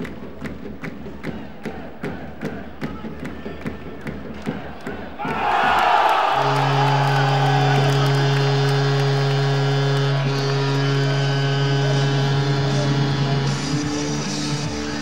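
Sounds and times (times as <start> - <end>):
crowd cheering: 1.2 - 15.0
goal horn low blast: 5.3 - 15.0.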